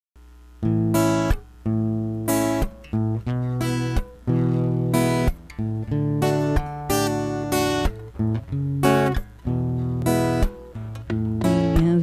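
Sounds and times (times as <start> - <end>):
acoustic guitar strumming chords: 0.6 - 12.0.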